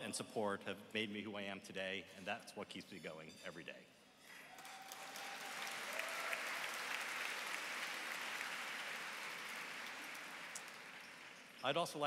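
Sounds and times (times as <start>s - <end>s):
large audience applauding: 4.3s - 11.6s.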